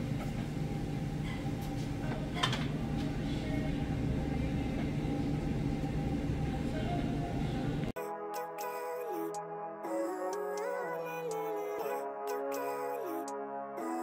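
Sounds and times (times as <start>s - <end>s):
low room hum: 0.0s - 8.0s.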